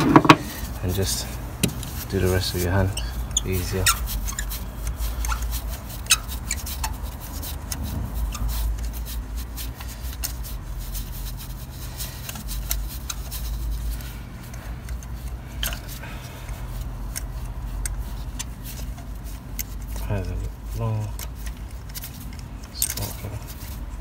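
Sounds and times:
socket scraping and clicking: 0.0s - 0.5s.

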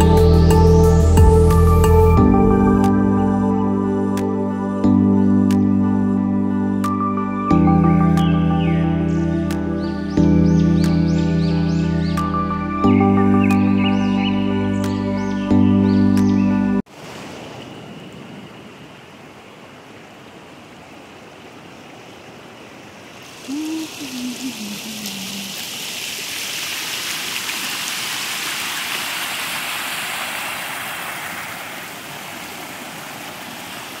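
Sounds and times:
river rushing over rocks: 23.2s - 34.0s
low voice-like sound: 23.5s - 25.6s.

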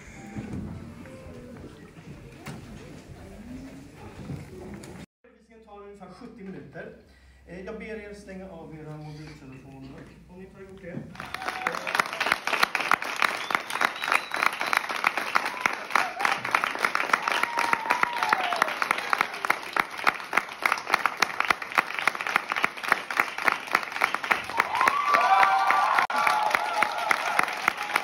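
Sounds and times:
crowd applauding: 11.1s - 28.0s.

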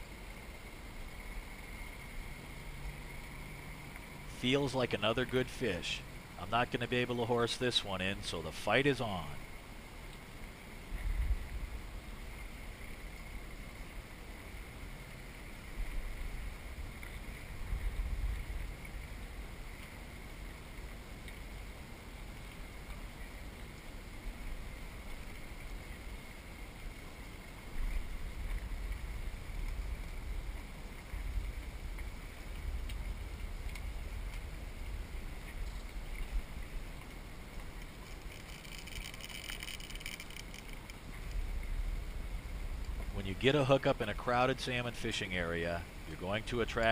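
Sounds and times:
faint high whine: 0.0s - 46.9s
open water ambience: 0.0s - 46.9s
wind gusts on microphone: 10.9s - 12.4s.

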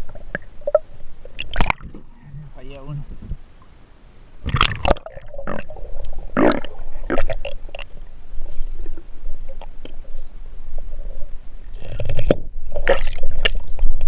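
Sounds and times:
underwater gurgling and bubbling: 4.4s - 14.0s.

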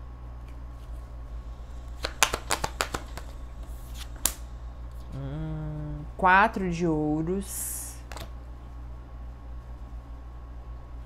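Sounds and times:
cards being shuffled: 0.4s - 5.1s.

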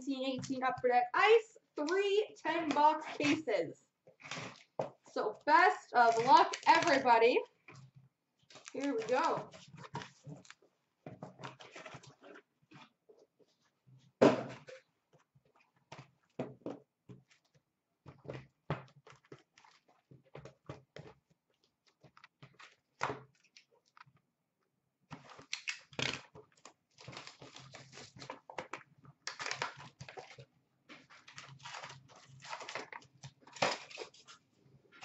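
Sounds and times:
box and plastic wrap tearing: 5.6s - 7.2s, 8.5s - 10.6s, 25.2s - 28.5s, 29.2s - 30.5s, 31.1s - 34.4s.

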